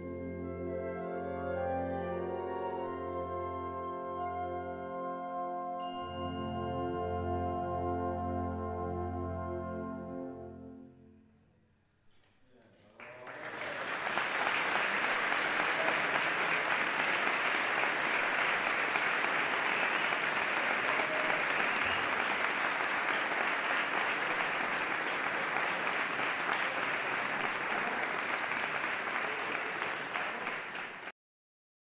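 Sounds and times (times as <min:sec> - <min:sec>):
audience applause: 0:12.9 - 0:31.1.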